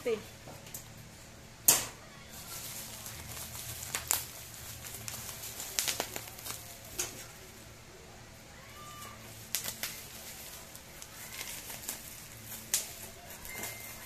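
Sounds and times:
plastic and bubble wrap ripping: 2.3s - 7.4s, 8.8s - 14.0s
plastic crinkling: 2.3s - 7.5s, 8.8s - 14.0s.

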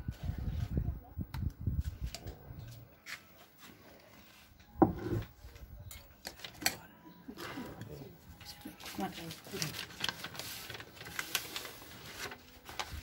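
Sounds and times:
crockery bumping on a table: 4.8s - 5.3s.

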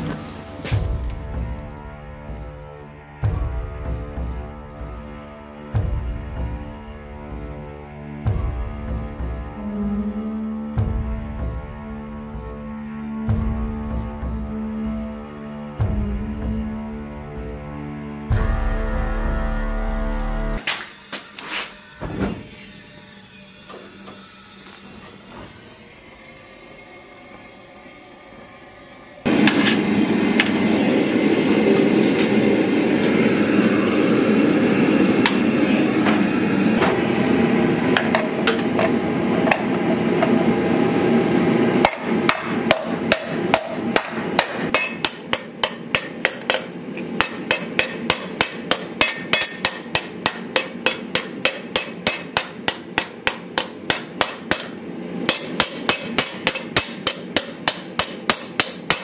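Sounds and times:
gas forge burner rushing: 0.0s - 1.4s, 29.2s - 44.7s
hammer striking hot steel: 41.8s - 59.0s.

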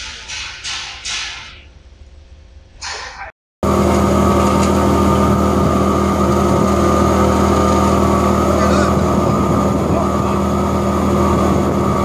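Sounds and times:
wood chipper running: 3.6s - 12.0s.

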